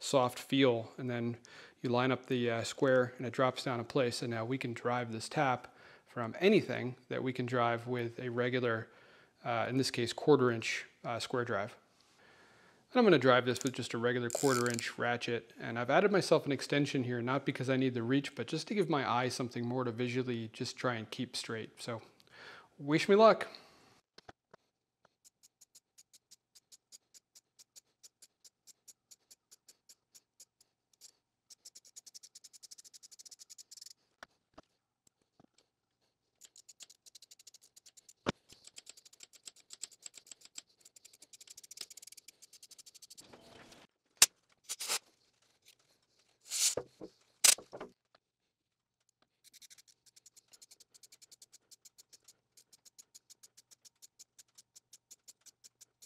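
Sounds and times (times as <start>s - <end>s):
ratchet clicking: 25.2s - 34.0s, 36.4s - 43.2s, 49.4s - 56.0s
short scrapes: 44.7s - 45.0s, 46.4s - 46.8s.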